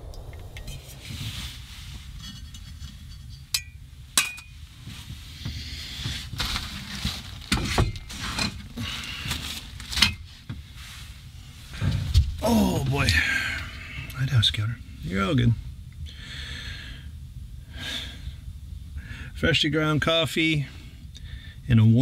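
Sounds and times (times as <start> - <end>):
camp cookware clinking: 3.5 - 4.6
rustling: 4.5 - 12.3.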